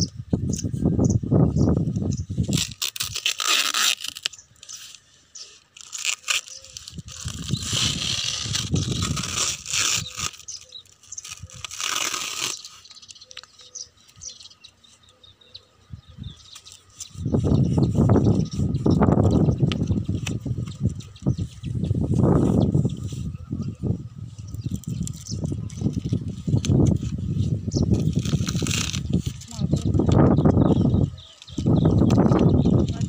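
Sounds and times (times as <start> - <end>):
packing tape peeling: 2.4 - 14.2, 24.5 - 33.0
plastic wrap crinkling: 2.5 - 5.0, 5.7 - 13.6, 24.6 - 30.2.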